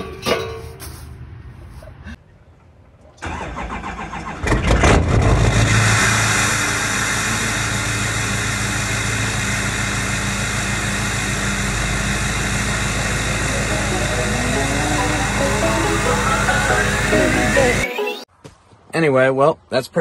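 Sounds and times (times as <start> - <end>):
diesel engine starting and idling: 3.2 - 18.3.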